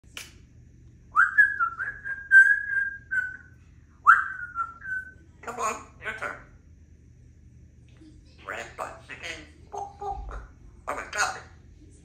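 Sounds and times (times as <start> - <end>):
parrot whistling clear notes: 1.2 - 5.6.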